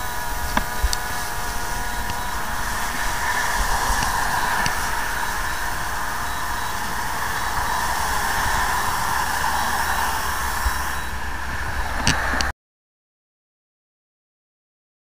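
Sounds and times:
drone propellers buzzing: 0.0s - 12.5s.

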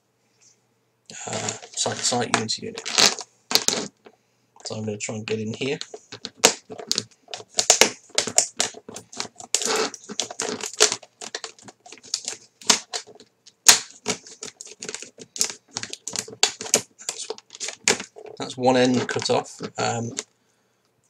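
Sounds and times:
scissors cutting hard plastic: 5.8s - 20.2s.

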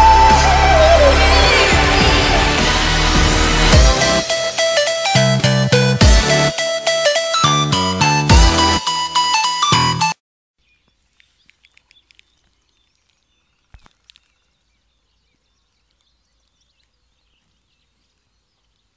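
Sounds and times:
electronic music: 0.0s - 10.2s.

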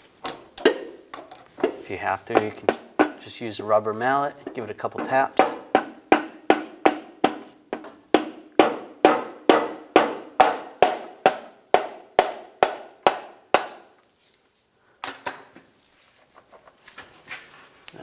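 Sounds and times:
mallet tapping metal shaft: 4.5s - 13.9s.

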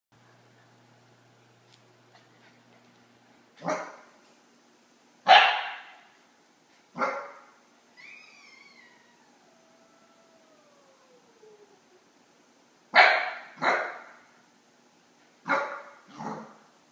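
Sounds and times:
puppy barking: 3.6s - 4.1s, 5.3s - 6.1s, 7.0s - 7.5s, 12.9s - 14.2s, 15.5s - 16.6s
puppy whining: 7.9s - 12.1s.

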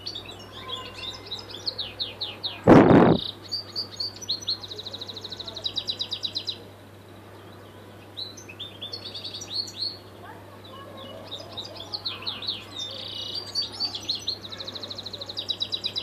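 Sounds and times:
brief loud rushing noise: 2.7s - 3.3s
goldfinch singing: 8.0s - 16.0s.

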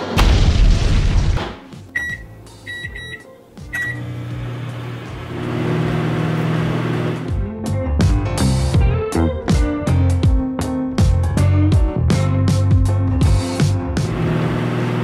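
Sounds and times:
microwave keypad beeps: 1.9s - 4.2s
microwave humming: 2.0s - 7.3s, 14.0s - 15.0s.

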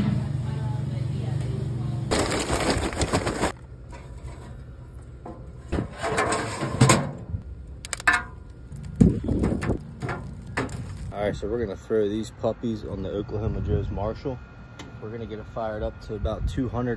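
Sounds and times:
charcoal clattering into basket: 2.1s - 4.2s, 7.9s - 11.1s
metal clunks and scrapes: 3.3s - 7.4s, 9.3s - 11.1s.

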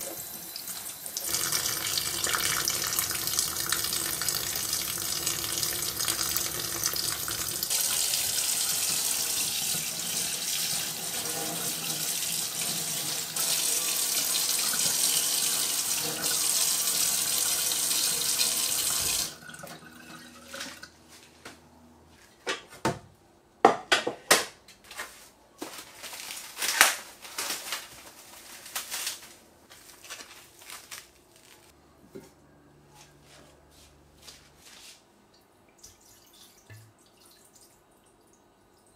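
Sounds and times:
water dripping: 1.2s - 7.8s, 35.3s - 38.9s.

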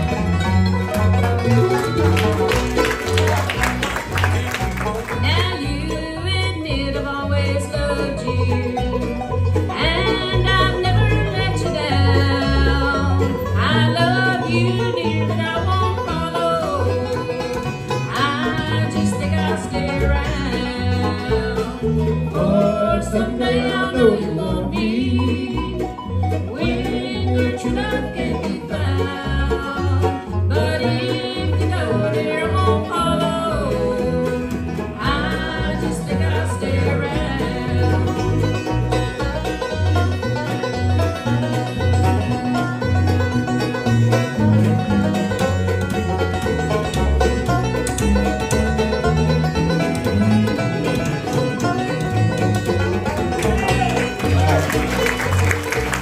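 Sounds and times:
acoustic guitar: 0.0s - 56.0s
banjo: 0.0s - 56.0s
mandolin: 0.0s - 56.0s
upright bass: 0.0s - 56.0s
people singing: 18.1s - 25.9s, 26.5s - 29.9s, 30.5s - 38.4s.

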